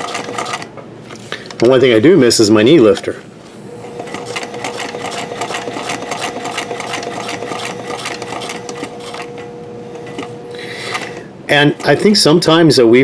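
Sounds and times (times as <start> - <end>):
sewing machine stitching: 0.0 - 0.7, 3.8 - 12.4.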